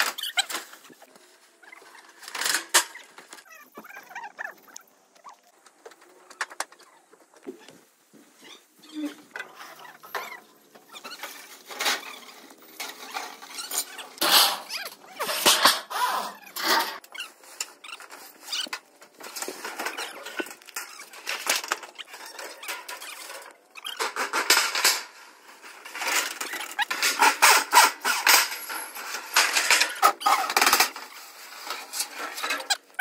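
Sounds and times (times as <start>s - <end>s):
metal roofing sheets scraping and clattering: 0.0s - 4.0s, 9.0s - 33.0s.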